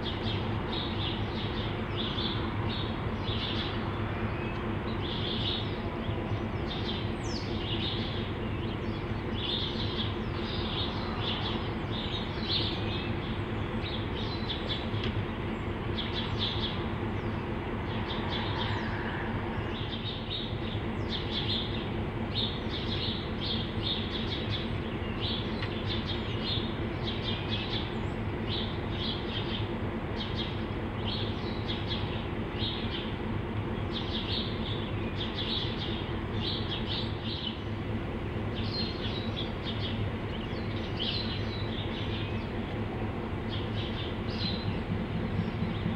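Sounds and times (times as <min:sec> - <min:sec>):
birds chirping: 0:00.0 - 0:45.9
diesel locomotives idling: 0:00.0 - 0:45.9.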